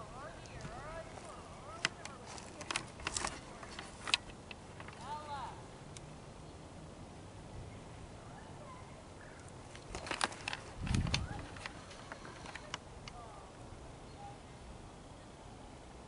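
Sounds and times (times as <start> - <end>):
camera handling crackles and clicks: 1.8 - 5.0, 9.7 - 12.8
faint bird chirps: 7.6 - 9.6, 11.3 - 15.8.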